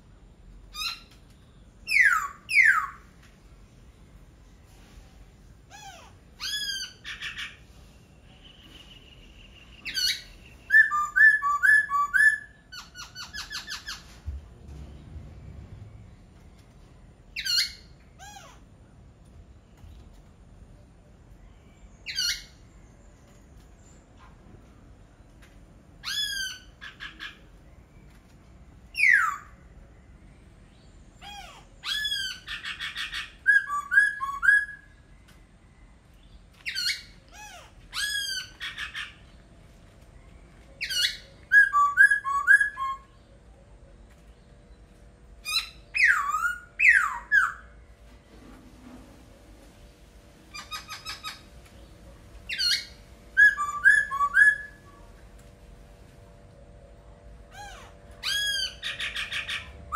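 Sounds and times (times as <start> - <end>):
bird whistled phrases: 1.8 - 3.0, 8.4 - 14.0, 28.9 - 29.6, 31.8 - 35.0, 40.8 - 43.2, 45.5 - 47.7, 52.5 - 55.0.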